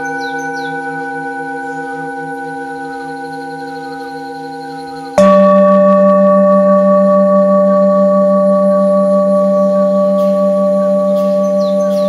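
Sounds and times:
singing bowl ringing: 0:00.0 - 0:12.0.

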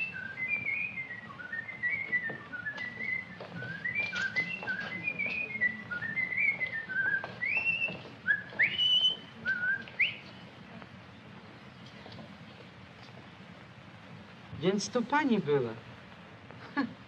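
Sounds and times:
man whistling a tune: 0:00.0 - 0:10.2
old film soundtrack hum and hiss: 0:00.0 - 0:17.0.

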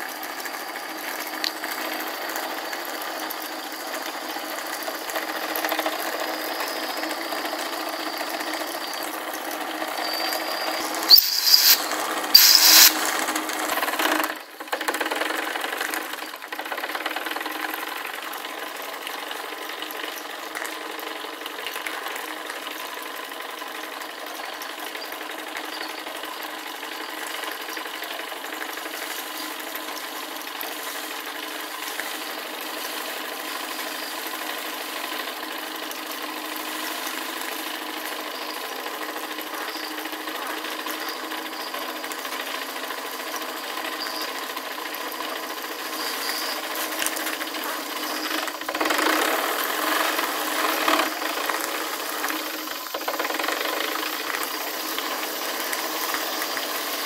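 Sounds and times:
toy steam engine rattling: 0:00.0 - 0:57.0
short loud noise bursts: 0:10.0 - 0:13.5.

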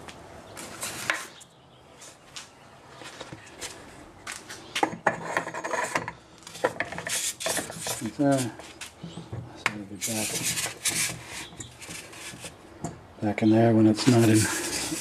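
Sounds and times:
wood rubbing and scraping: 0:04.5 - 0:12.9, 0:13.8 - 0:15.0.

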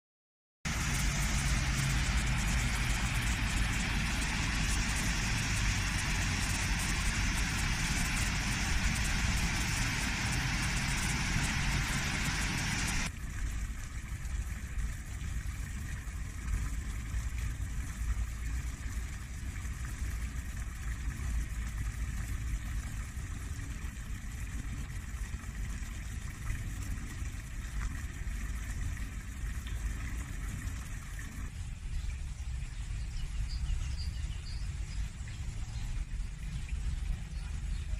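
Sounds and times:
low rumble: 0:00.7 - 0:23.2
fountain splashing into stone basin: 0:00.7 - 0:37.9
small fountain jets splashing: 0:00.7 - 0:37.9.

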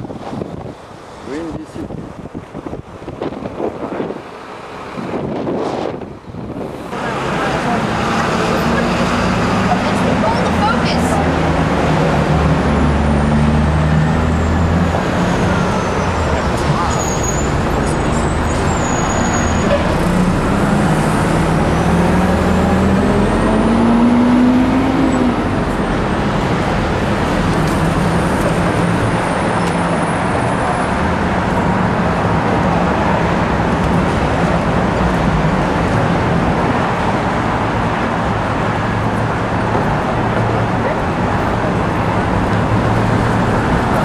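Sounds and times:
passing cars and buses: 0:00.0 - 0:44.0
vehicle engine accelerating: 0:06.9 - 0:29.8.

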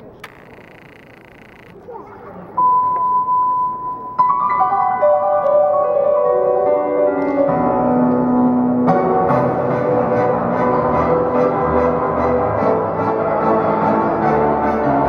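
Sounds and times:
piano music with beat: 0:03.9 - 0:11.1.

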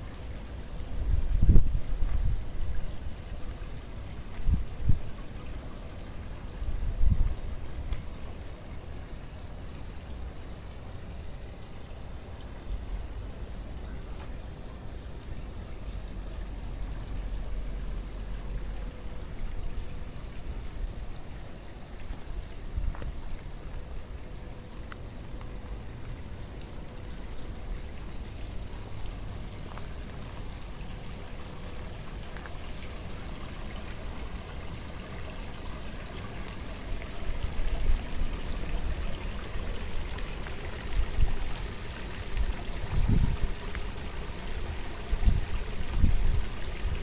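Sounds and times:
small waterfall trickling: 0:00.0 - 0:47.0.

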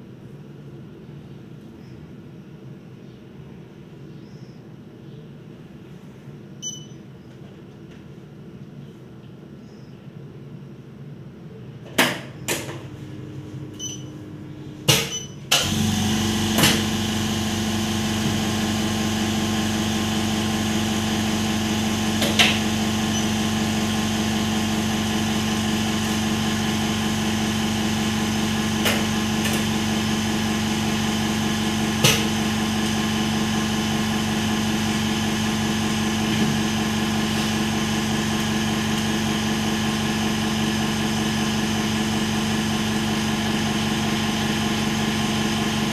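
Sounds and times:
machine motor humming: 0:12.8 - 0:45.9.

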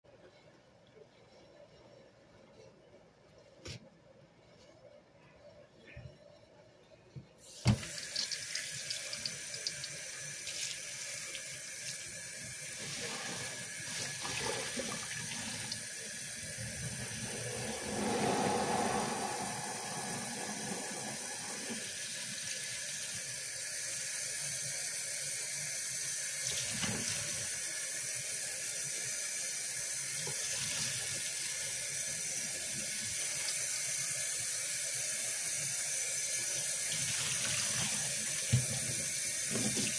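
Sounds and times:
faucet running into basin: 0:07.4 - 0:39.9
water pouring into sink: 0:07.5 - 0:23.3, 0:36.5 - 0:39.9.

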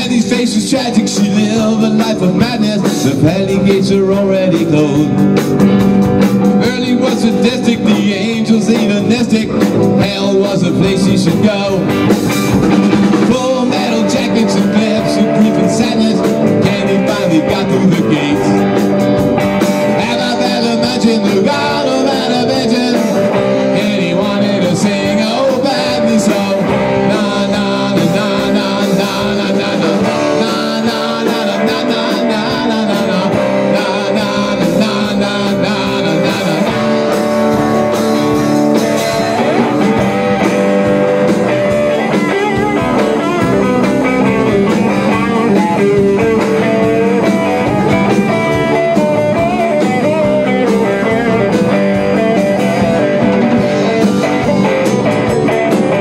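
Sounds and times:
bass guitar: 0:00.0 - 0:56.0
drum kit: 0:00.0 - 0:56.0
electric guitar: 0:00.0 - 0:56.0.

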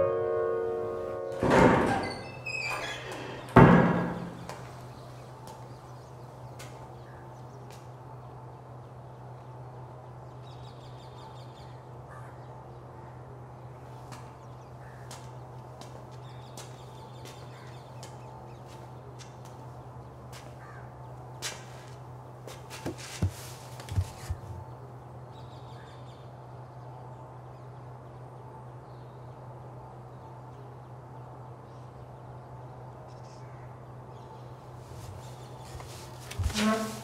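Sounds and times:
crows cawing: 0:12.1 - 0:12.4, 0:14.8 - 0:15.2, 0:20.6 - 0:21.0.

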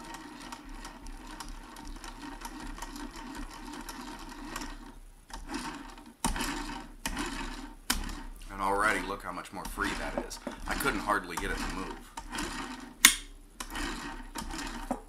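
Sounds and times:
sewing machine mechanism clicking: 0:00.0 - 0:15.0.

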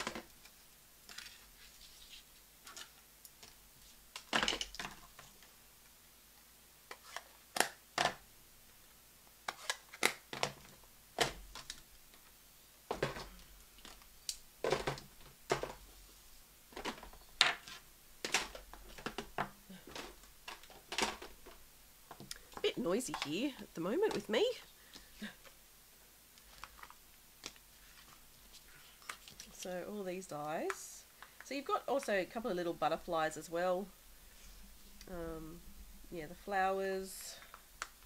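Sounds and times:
plastic and metal items clacking: 0:02.6 - 0:05.5, 0:12.9 - 0:16.0, 0:16.7 - 0:24.4.

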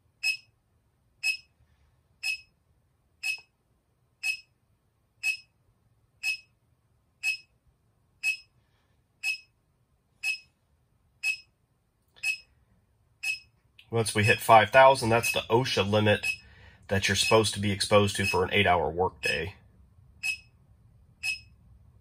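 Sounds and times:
short high electronic beep: 0:20.2 - 0:20.5.

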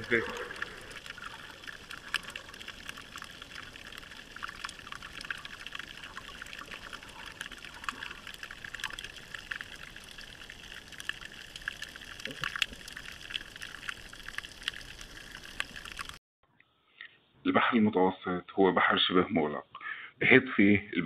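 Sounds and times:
faint underwater clicks: 0:00.0 - 0:16.2.

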